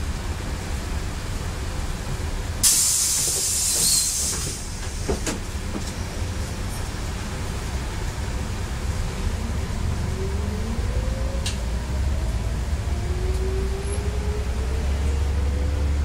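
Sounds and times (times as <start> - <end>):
bus engine rumbling: 0.0 - 16.0
compressed air hiss: 2.6 - 5.3.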